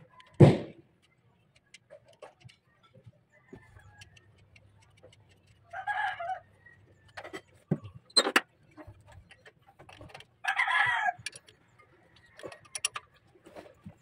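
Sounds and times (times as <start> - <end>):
wrench clinking on metal nuts: 12.2 - 13.1.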